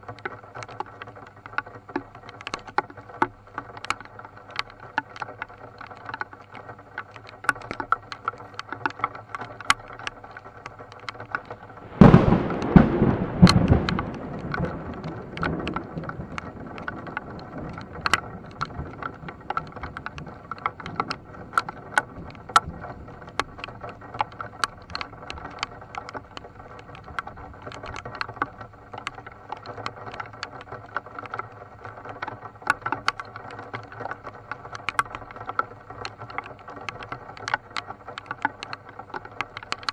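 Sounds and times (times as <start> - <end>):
rain ticking on a car windshield: 0.0 - 39.9
thunder clap rumbling: 11.6 - 24.2.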